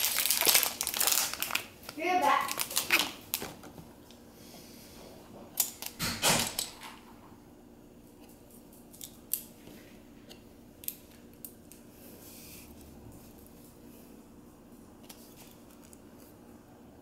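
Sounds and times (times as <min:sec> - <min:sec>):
packaging rustling: 0:00.0 - 0:03.9.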